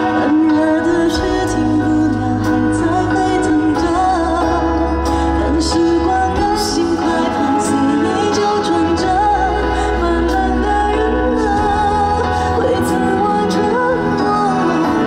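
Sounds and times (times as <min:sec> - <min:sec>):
pop band playing live: 0:00.0 - 0:15.0.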